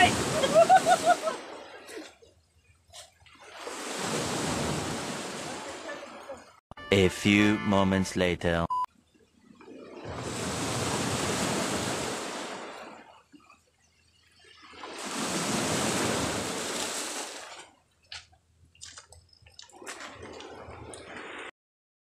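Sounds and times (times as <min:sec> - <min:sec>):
sea waves breaking on shore: 0:00.0 - 0:02.3, 0:03.1 - 0:06.6, 0:09.6 - 0:13.7, 0:14.3 - 0:17.8.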